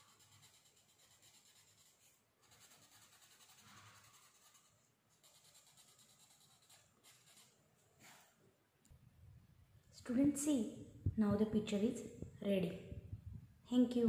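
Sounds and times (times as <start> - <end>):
pencil scratching on paper: 0.0 - 8.2.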